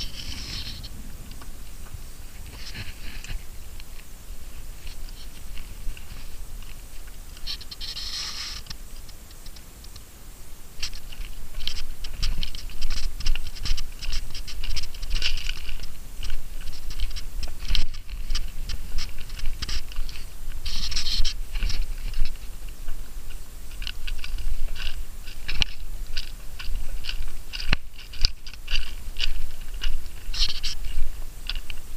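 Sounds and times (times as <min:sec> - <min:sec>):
low wind rumble: 0:00.0 - 0:31.9
rustling and scratching on microphone: 0:00.0 - 0:31.9.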